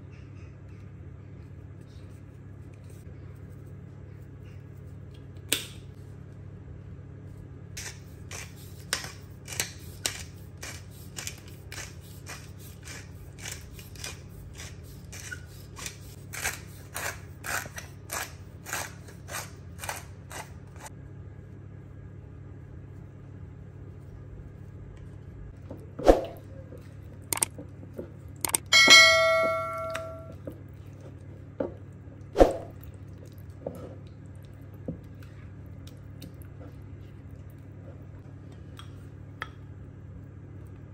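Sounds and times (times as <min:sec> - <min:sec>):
short ringing clink: 0:28.6 - 0:30.4.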